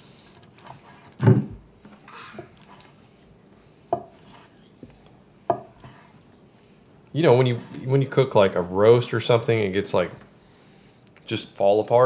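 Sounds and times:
knife chopping on wooden board: 0:03.9 - 0:04.5, 0:05.5 - 0:06.0.

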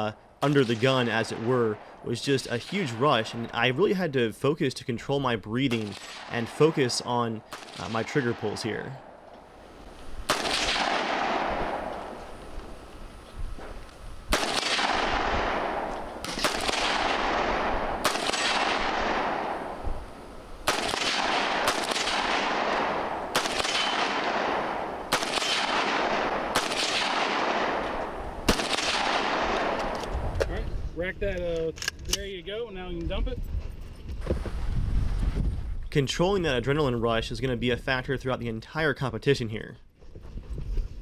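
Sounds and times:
gunshot echo: 0:05.7 - 0:09.2, 0:10.3 - 0:12.2, 0:14.3 - 0:19.8, 0:20.7 - 0:30.0
rifle shots: 0:05.7 - 0:09.2, 0:10.2 - 0:12.3, 0:14.3 - 0:19.8, 0:20.6 - 0:30.2.

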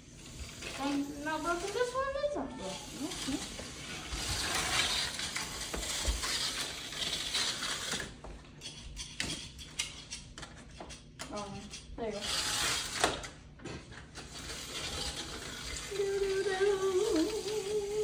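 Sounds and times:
slot car motor whirring: 0:00.1 - 0:08.1, 0:12.2 - 0:13.0, 0:14.2 - 0:18.0.

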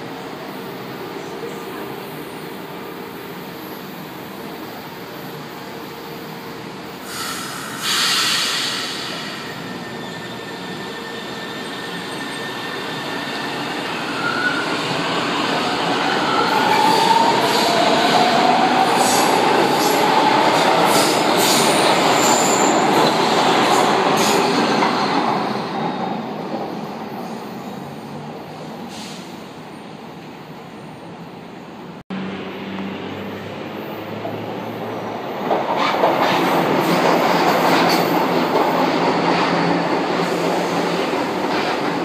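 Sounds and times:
train brake hiss: 0:06.9 - 0:12.6, 0:28.8 - 0:29.4
train wheel squeal: 0:07.0 - 0:14.9, 0:20.9 - 0:26.2.

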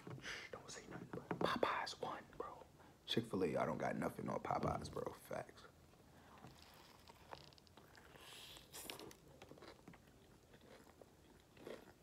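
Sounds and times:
chewing crunchy food: 0:06.3 - 0:12.0.

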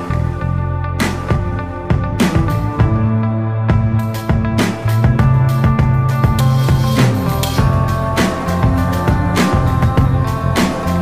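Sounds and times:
regular beat: 0:01.0 - 0:11.0
sustained instrument notes: 0:05.1 - 0:11.0.

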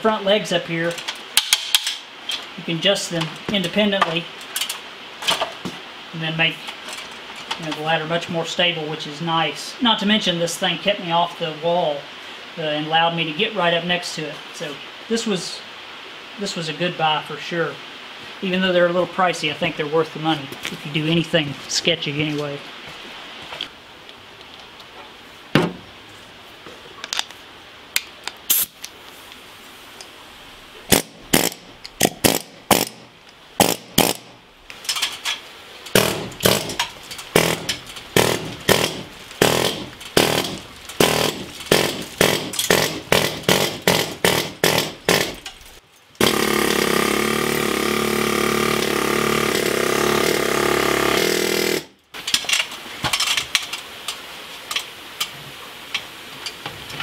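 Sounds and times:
sharp knocks on concrete wall: 0:25.6 - 0:25.8
pneumatic air hammer running: 0:30.9 - 0:33.0, 0:33.6 - 0:34.3, 0:36.0 - 0:45.5, 0:46.2 - 0:51.9.

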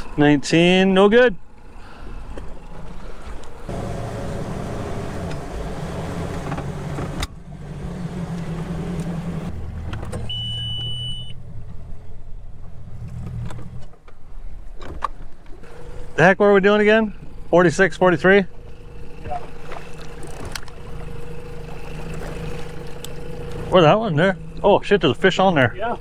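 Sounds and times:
outboard motor running: 0:00.0 - 0:11.3, 0:15.4 - 0:26.0
water against hull: 0:01.5 - 0:07.4, 0:18.6 - 0:25.7
short high electronic beep: 0:10.3 - 0:11.4.

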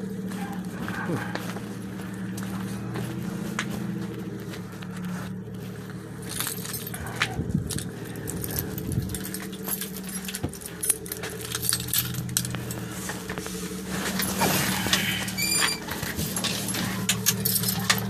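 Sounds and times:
steady low hum: 0:00.0 - 0:18.0
keys jangling and clicking: 0:05.3 - 0:18.0.

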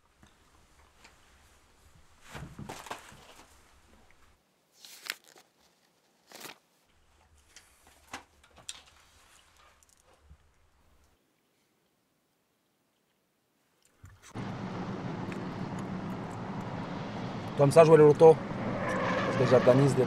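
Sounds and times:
notepad pages flipping: 0:04.8 - 0:06.7.

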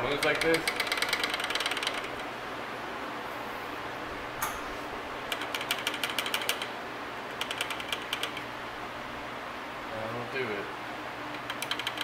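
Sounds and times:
ratchet wrench clicking: 0:00.2 - 0:02.1, 0:11.4 - 0:12.0.

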